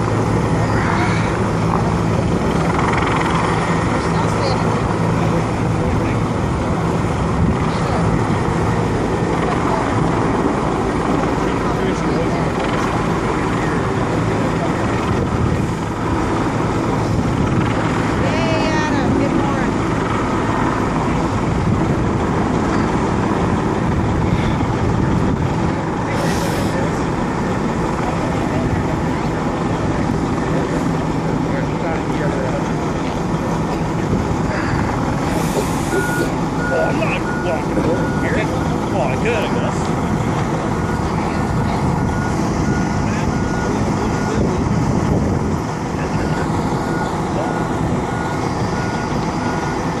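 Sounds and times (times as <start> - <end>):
helicopter rotor rumble: 0.0 - 50.0
road vehicles idling: 0.0 - 50.0
reversing alarm beeping: 35.6 - 38.8, 42.0 - 44.5, 46.2 - 50.0.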